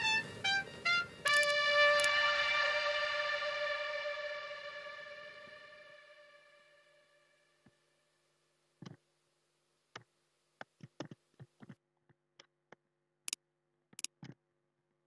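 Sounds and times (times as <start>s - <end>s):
faint steady hum: 0.0s - 11.8s.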